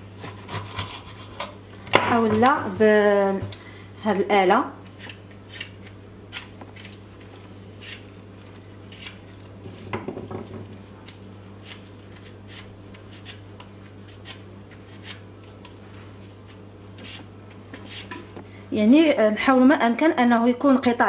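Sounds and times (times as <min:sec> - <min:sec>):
peeler scraping ginger: 0:00.2 - 0:01.6, 0:05.0 - 0:07.0, 0:07.8 - 0:08.1, 0:08.9 - 0:09.2, 0:11.6 - 0:15.3, 0:17.0 - 0:18.3.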